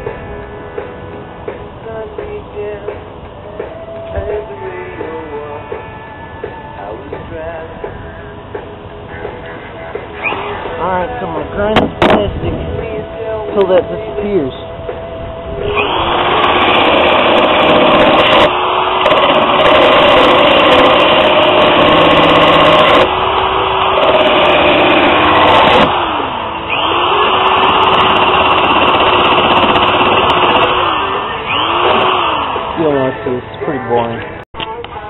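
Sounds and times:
grinder grinding plastic: 15.8 - 33.0.

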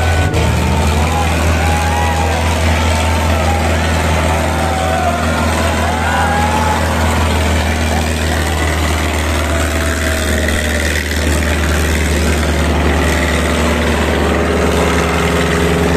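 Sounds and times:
tractor engines labouring: 0.0 - 15.9.

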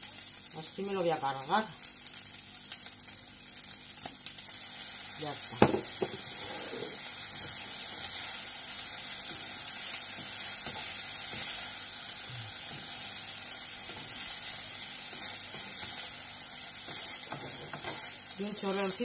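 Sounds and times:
rice sizzling in a frying pan: 0.0 - 19.0
spatula scraping a pan: 16.8 - 18.2.

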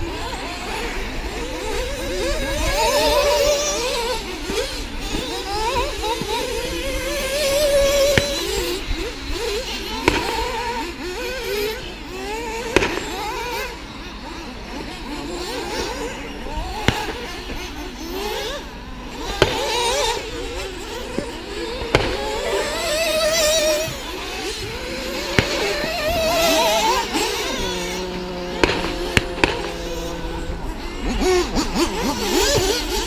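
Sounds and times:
cars clacking on the track: 0.0 - 33.0
rc car motors whining: 0.0 - 33.0.

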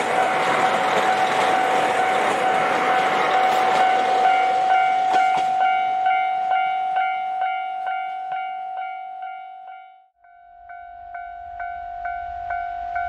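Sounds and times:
train rushing over rails: 0.0 - 8.6
level crossing warning bell: 0.0 - 13.0.

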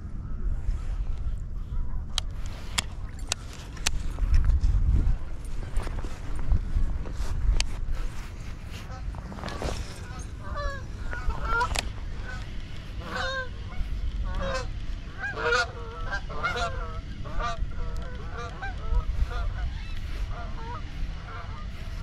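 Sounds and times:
wind rumble on microphone: 0.0 - 22.0
geese honking: 8.7 - 22.0.

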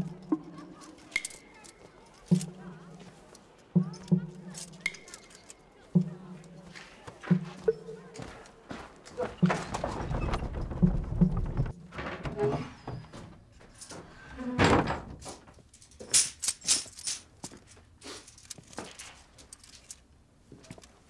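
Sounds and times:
wooden cart rumbling: 9.1 - 15.7.

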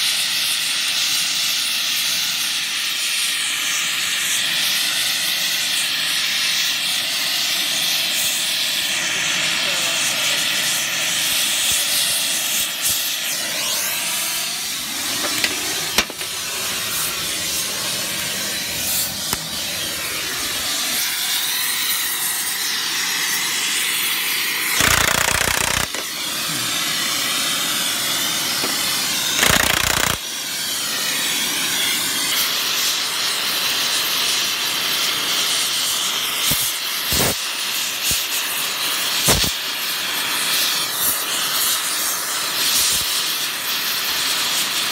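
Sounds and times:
torch flame hissing: 0.0 - 44.9
impact wrench bursts: 13.3 - 21.0, 24.6 - 30.9.

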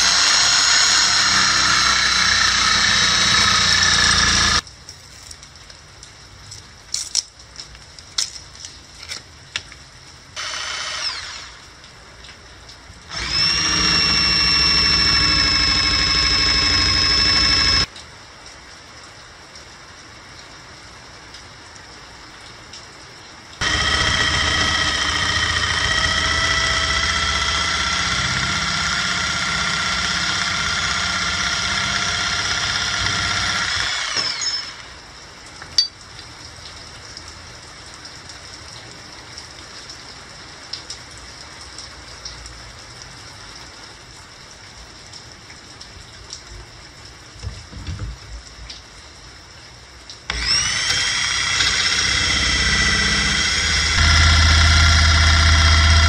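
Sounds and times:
electric jigsaw whining: 0.0 - 4.6, 10.4 - 11.7, 13.1 - 17.9, 23.6 - 35.0, 50.3 - 56.0.

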